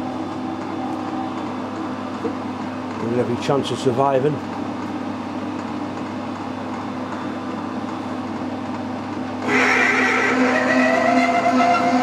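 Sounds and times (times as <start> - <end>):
high-pitched drill cutting whine: 9.4 - 12.0
metal lathe humming: 9.4 - 12.0.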